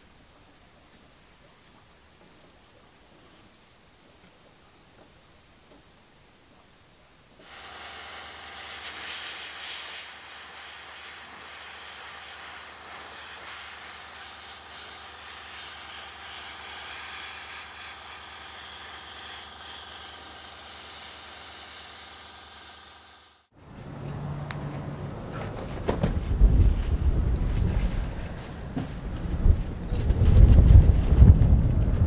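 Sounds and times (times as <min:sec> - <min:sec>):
airbrush spraying hiss: 0:07.4 - 0:23.5.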